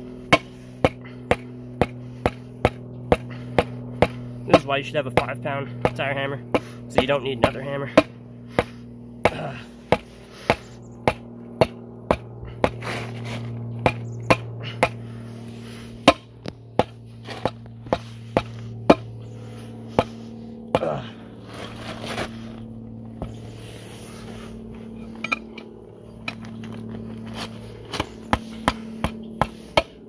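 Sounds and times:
hammer beating on tire: 0.3 - 12.8, 13.7 - 15.0, 16.0 - 19.3, 19.9 - 21.1, 27.8 - 30.0.

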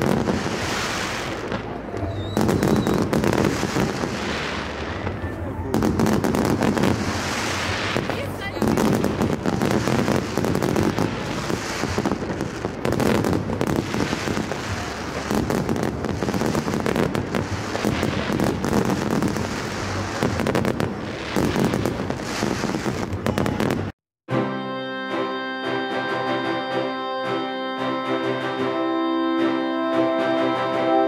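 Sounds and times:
fireworks crackling and popping: 0.0 - 24.0.

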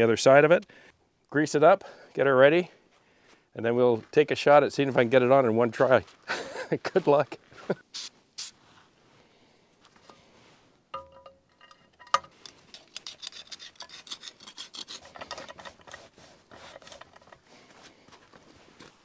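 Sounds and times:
metallic clink: 10.9 - 15.7
scraping and rubbing metal pin: 11.6 - 17.5.

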